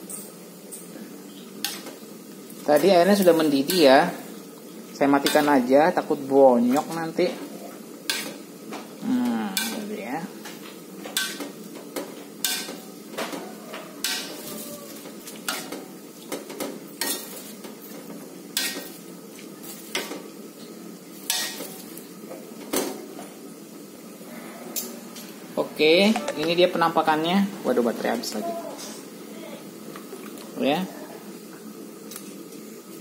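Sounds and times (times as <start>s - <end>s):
metal ladle scraping a wok: 8.1s - 8.4s, 14.0s - 15.9s.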